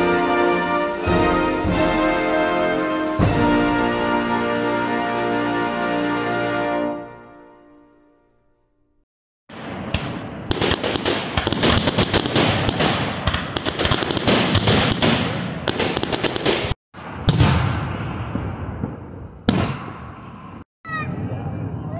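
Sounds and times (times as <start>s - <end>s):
fireworks crackling and banging: 9.5s - 20.6s
deep firework boom: 17.0s - 20.6s.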